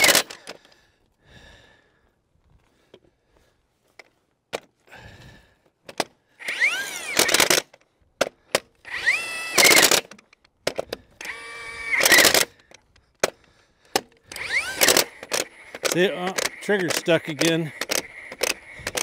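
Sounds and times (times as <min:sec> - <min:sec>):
impact wrench motor whining: 0:00.0 - 0:00.6, 0:06.4 - 0:07.8, 0:08.4 - 0:19.0
short clicks: 0:08.5 - 0:19.0
impact wrench hammer rattling: 0:09.6 - 0:19.0.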